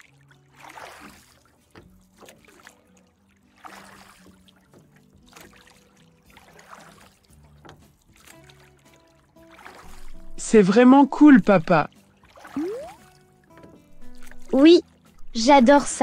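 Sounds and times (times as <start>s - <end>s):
paddles splashing through water: 0.0s - 16.0s
soft background music: 0.0s - 16.0s.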